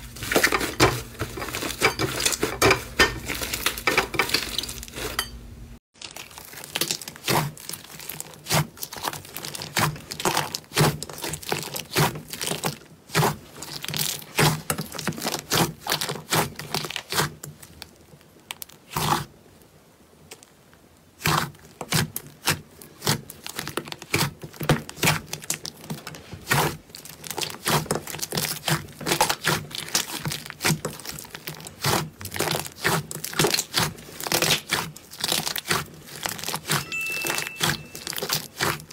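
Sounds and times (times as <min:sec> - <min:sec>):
hands squishing sticky slime: 0:06.0 - 0:19.3, 0:21.2 - 0:38.9.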